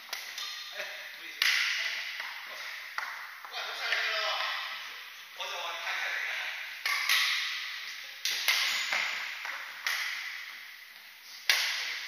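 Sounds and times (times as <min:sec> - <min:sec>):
rackets hitting shuttlecock: 0:00.0 - 0:04.8, 0:06.7 - 0:10.7, 0:11.3 - 0:12.0.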